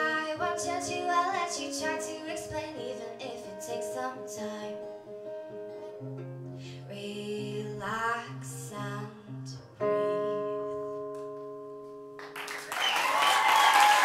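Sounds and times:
acoustic guitar picking: 0.0 - 12.2
person singing: 6.8 - 11.1
audience applause: 12.2 - 14.0.

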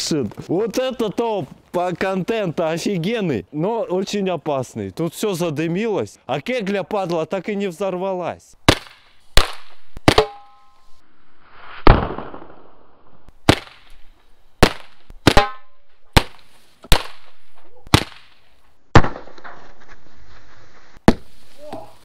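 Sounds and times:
firework bangs: 11.7 - 12.8, 14.6 - 19.6.

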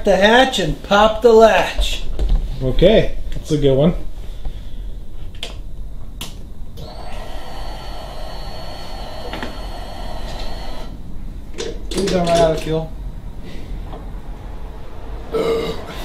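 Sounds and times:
electric fuel pump whining: 6.2 - 11.2.

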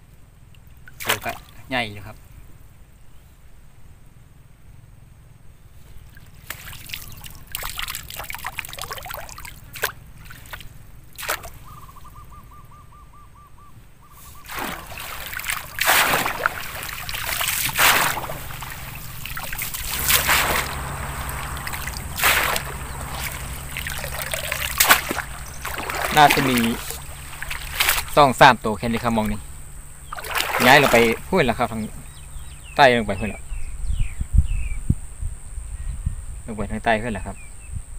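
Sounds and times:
sloshing footsteps in water: 6.0 - 11.6, 14.4 - 29.4, 30.0 - 31.3
bird trilling call: 11.6 - 15.8, 16.5 - 28.2
grass stems rustling: 14.4 - 28.3.

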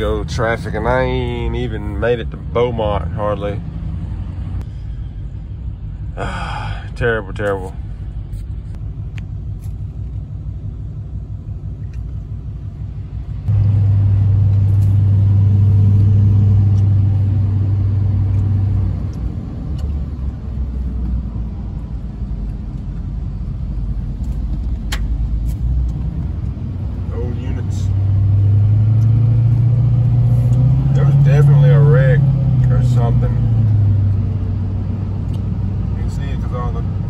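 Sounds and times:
truck driving rumble: 0.0 - 37.0
loud steady low hum: 1.9 - 19.6.

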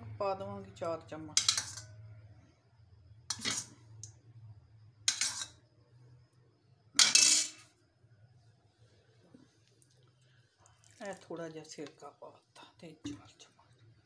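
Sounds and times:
spoon clattering on bowl: 1.4 - 1.8, 5.1 - 5.5, 7.0 - 7.6.

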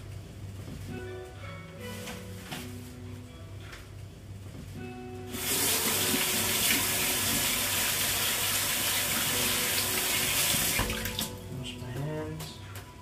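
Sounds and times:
water running from tap: 5.4 - 11.4.

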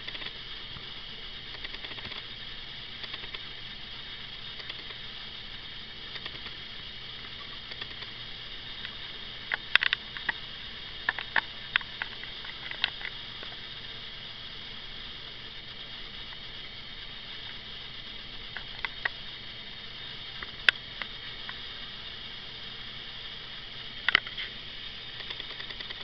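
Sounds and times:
steady hiss: 0.0 - 26.0
small sharp clicks and taps: 1.5 - 2.2, 3.0 - 3.5, 4.6 - 5.0, 6.1 - 6.6, 7.6 - 8.1, 8.8 - 10.4, 24.1 - 24.4.

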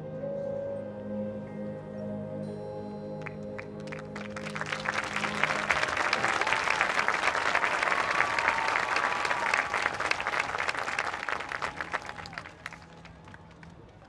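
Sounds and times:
crowd applauding: 3.2 - 14.0
crowd cheering: 3.8 - 14.0.

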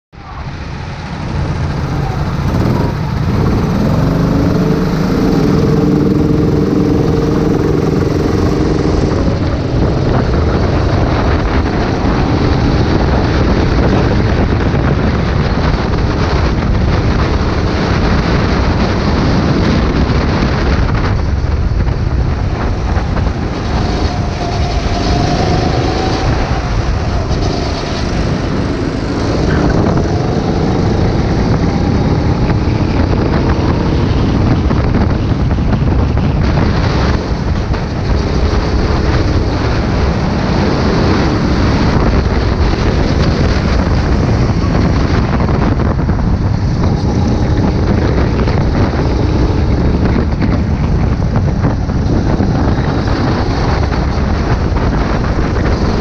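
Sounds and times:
wind rush on microphone: 0.1 - 56.0
go-kart engine revving: 0.8 - 56.0.

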